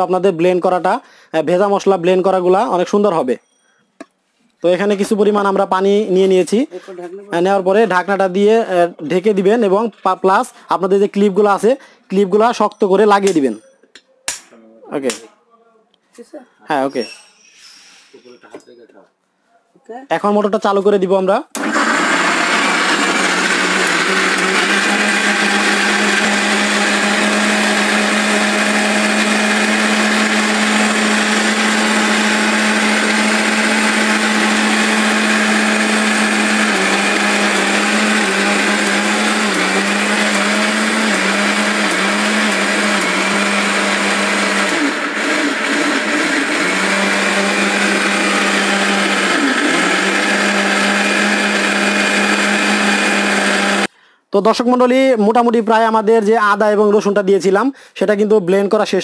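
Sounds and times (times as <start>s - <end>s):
mixer grinder motor whine: 21.6s - 53.9s.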